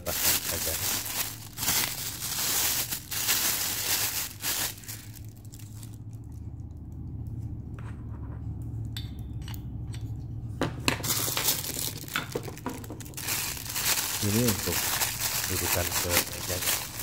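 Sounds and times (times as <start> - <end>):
plastic bag crinkling: 0.0 - 6.2, 11.0 - 17.0
low steady hum: 0.0 - 17.0.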